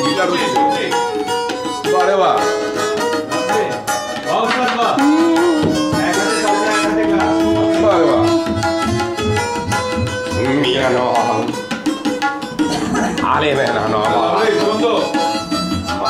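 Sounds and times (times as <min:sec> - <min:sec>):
acoustic guitar: 0:00.0 - 0:16.0
hand percussion: 0:00.0 - 0:16.0
long held note: 0:05.0 - 0:09.2.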